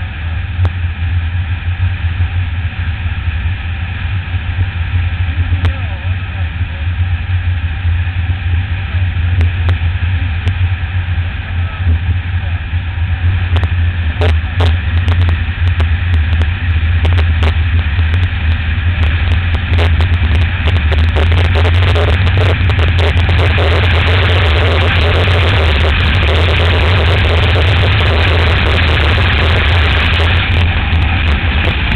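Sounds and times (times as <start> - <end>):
motorcycle engine drone: 0.0 - 31.9
rushing wind noise: 7.0 - 31.9
wind buffets on microphone: 13.2 - 31.9.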